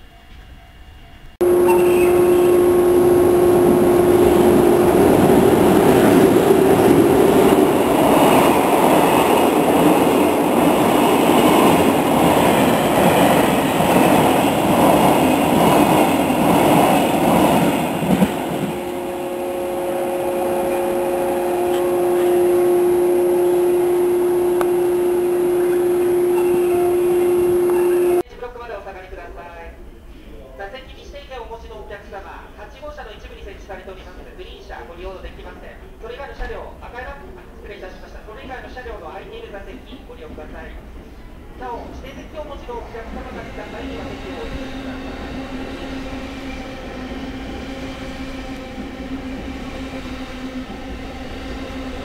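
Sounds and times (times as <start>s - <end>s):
steady tone: 1.4s - 28.2s.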